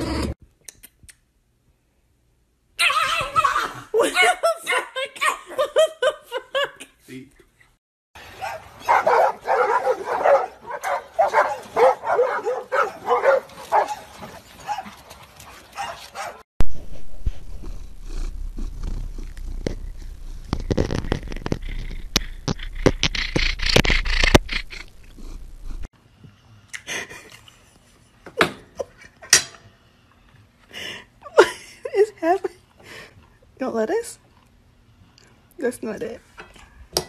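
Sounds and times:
dog barking and yipping: 8.3 - 16.4
steady low rumble: 16.6 - 25.9.

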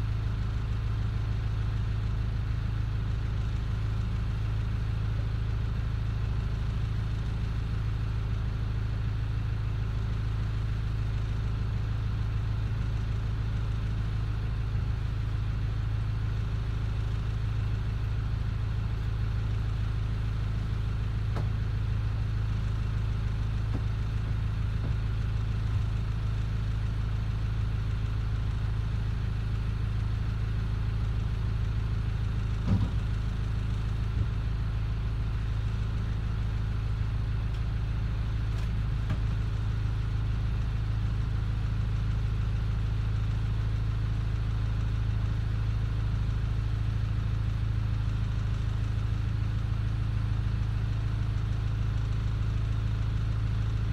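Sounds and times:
boat engine idling: 20.4 - 27.2.

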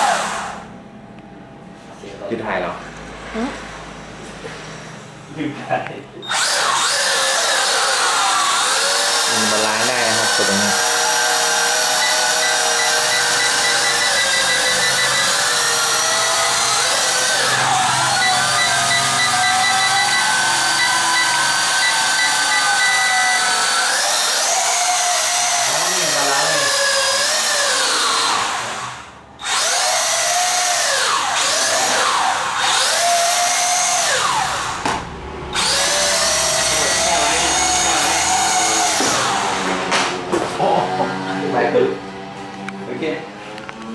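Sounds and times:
toy drone motors whirring: 6.3 - 34.8, 35.6 - 39.6.

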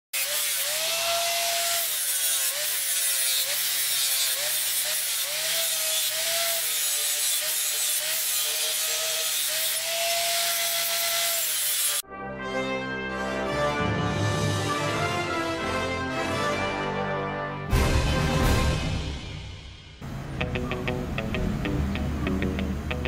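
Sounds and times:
angle grinder grinding metal: 0.1 - 12.0.

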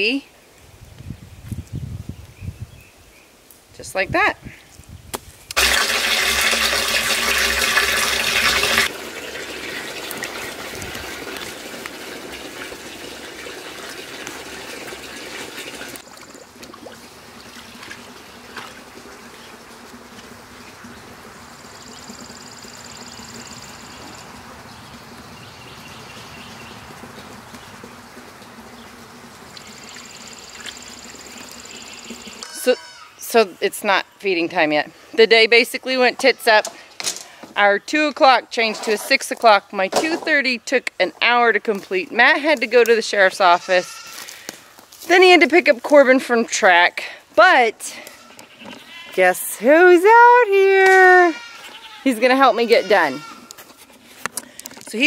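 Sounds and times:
water gushing into plastic barrel: 5.5 - 24.2.

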